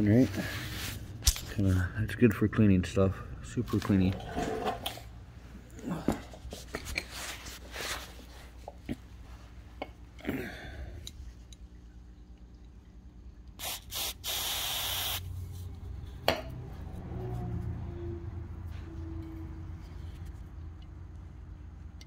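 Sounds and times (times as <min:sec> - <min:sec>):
pressurised spray hissing: 0:13.6 - 0:15.2.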